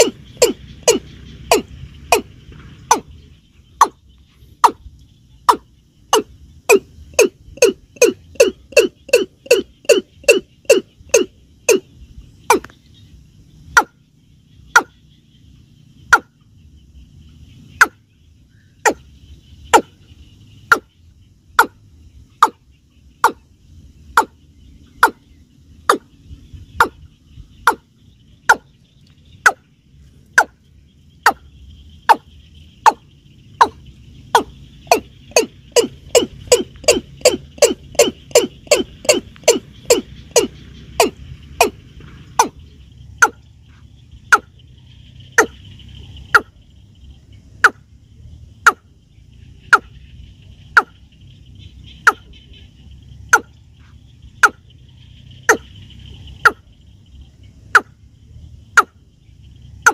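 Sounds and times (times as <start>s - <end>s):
bird calling sharp notes: 0.0s - 15.3s, 24.1s - 43.5s, 44.2s - 46.6s, 49.5s - 56.7s.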